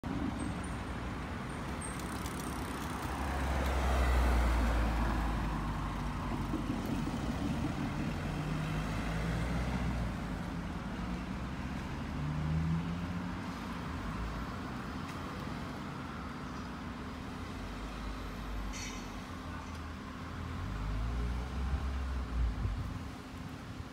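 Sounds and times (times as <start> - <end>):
steady traffic hum: 0.0 - 23.9
car passing with low rumble: 2.0 - 14.7.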